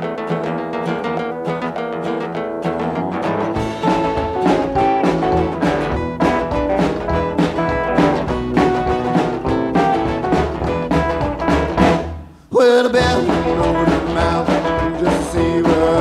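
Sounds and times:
up-tempo band song: 0.0s - 16.0s
drum kit steady beat: 3.4s - 16.0s.

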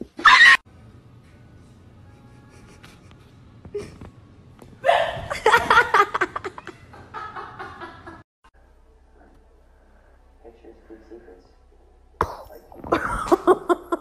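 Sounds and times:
person laughing hard: 4.8s - 8.2s, 12.9s - 14.0s.

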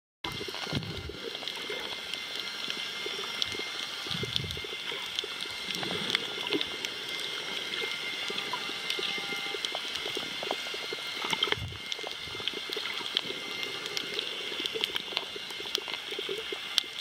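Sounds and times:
sharp clicks and crackles: 0.2s - 17.0s
underwater watery hiss: 0.4s - 17.0s.

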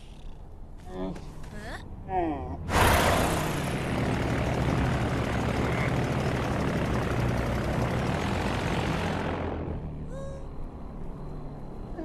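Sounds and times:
propeller plane engine droning: 0.0s - 12.0s
airy rush of flight: 2.7s - 10.5s.

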